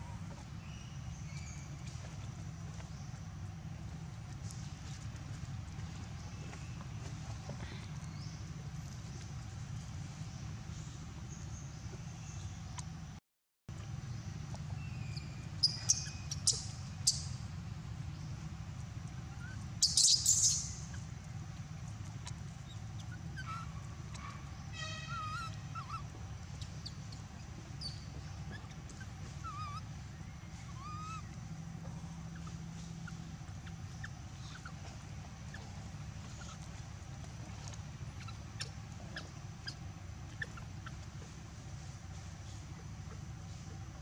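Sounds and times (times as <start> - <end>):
steady low hum: 0.0 - 44.0
rattle of ticks: 13.8 - 44.0
small squeaky calls: 14.6 - 17.5, 19.0 - 44.0
sharp high animal chirps: 15.0 - 17.4, 19.4 - 21.1, 22.2 - 31.3, 32.3 - 36.7, 37.4 - 41.4
loud noisy animal call: 24.4 - 26.1.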